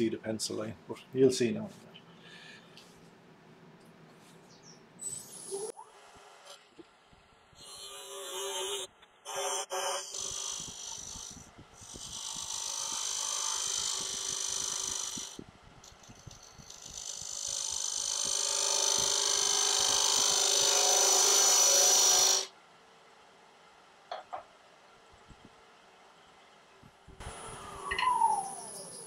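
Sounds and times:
lathe tool scraping wood: 0:07.6 - 0:22.5.

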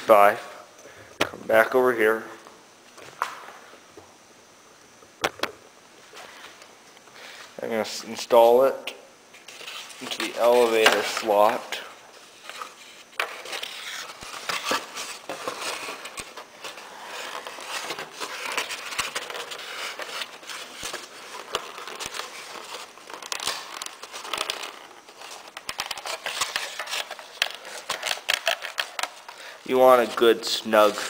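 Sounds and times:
foam creaking and crinkling: 0:09.4 - 0:31.0.

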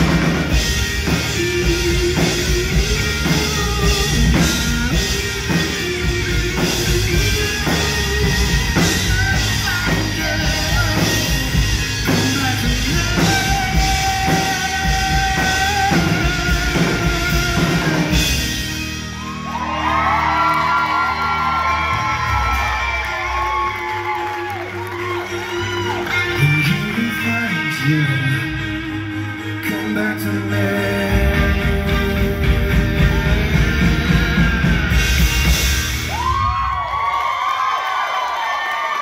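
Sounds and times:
man singing lead vocal: 0:00.0 - 0:18.5, 0:26.2 - 0:34.8
electric guitar notes: 0:00.0 - 0:36.6
rock band playing: 0:00.0 - 0:39.0.

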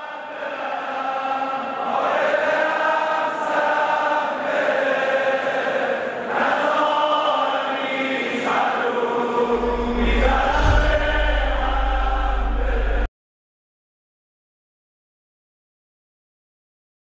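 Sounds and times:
choir-like voices singing: 0:00.0 - 0:13.1
deep low hum: 0:09.5 - 0:13.1.

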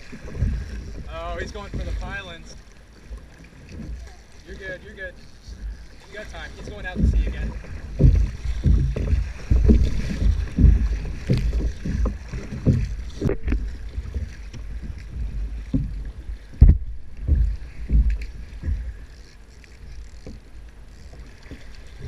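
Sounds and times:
wind rumbling on microphone: 0:00.0 - 0:02.5, 0:04.9 - 0:19.3
water slapping kayak hull: 0:00.0 - 0:22.0
sharp knocks: 0:06.8 - 0:13.6, 0:16.6 - 0:18.9.

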